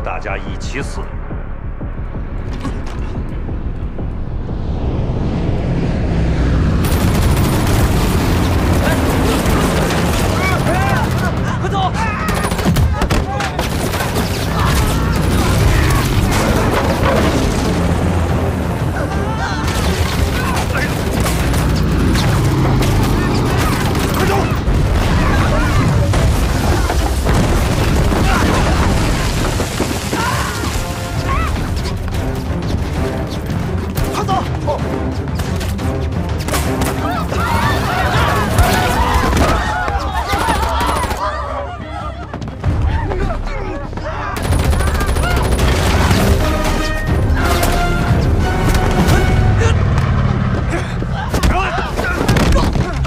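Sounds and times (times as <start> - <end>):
dramatic film music: 0.0 - 53.0
rapid gunfire: 6.8 - 11.6, 12.2 - 17.0, 19.7 - 30.1, 40.2 - 41.2, 44.4 - 46.7
people shouting: 8.6 - 16.9, 18.8 - 31.9, 36.8 - 47.0, 47.7 - 53.0.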